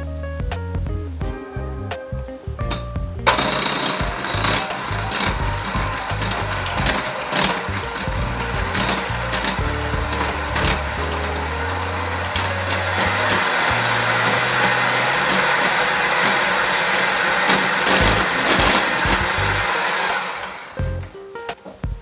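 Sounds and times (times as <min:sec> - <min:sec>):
electric hand mixer whirring: 0:03.3 - 0:20.8.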